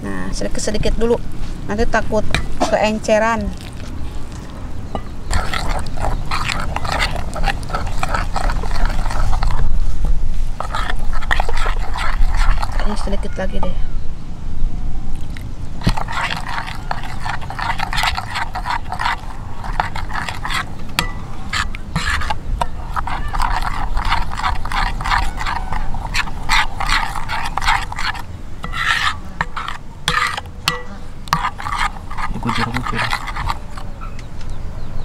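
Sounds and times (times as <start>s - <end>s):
batter stirred in a bowl: 2.2s - 13.6s, 15.2s - 34.0s.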